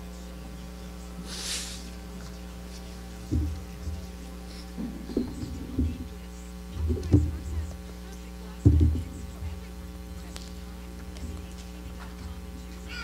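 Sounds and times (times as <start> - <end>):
electrical mains hum: 0.0 - 13.0
books knocking on a lectern: 3.2 - 4.0, 8.6 - 9.1.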